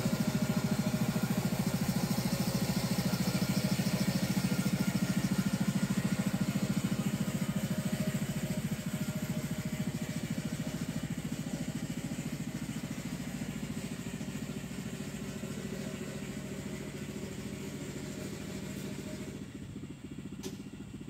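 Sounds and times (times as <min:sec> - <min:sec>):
faint click: 0:20.4 - 0:20.6.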